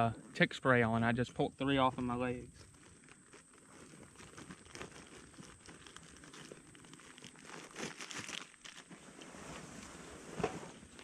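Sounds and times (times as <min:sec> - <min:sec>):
clothing crinkling and rustling: 0:02.5 - 0:11.0.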